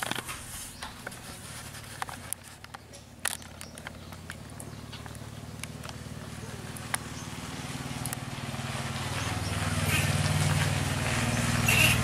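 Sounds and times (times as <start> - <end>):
low engine hum: 0.0 - 12.0
water splashing in plastic tub: 3.1 - 12.0.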